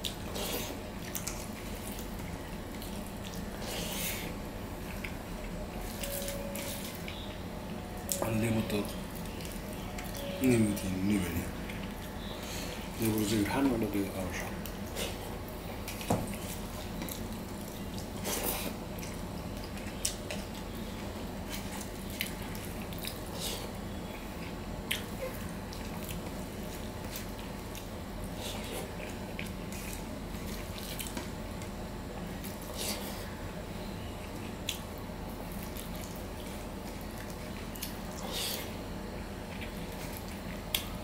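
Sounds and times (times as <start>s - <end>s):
wet chewing: 0.0s - 7.4s, 14.6s - 20.8s, 34.2s - 41.0s.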